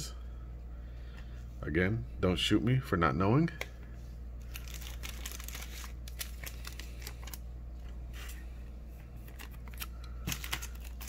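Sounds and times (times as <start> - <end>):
steady low hum: 0.0 - 11.0
trading cards rustling and clicking: 4.5 - 8.4, 9.2 - 11.0.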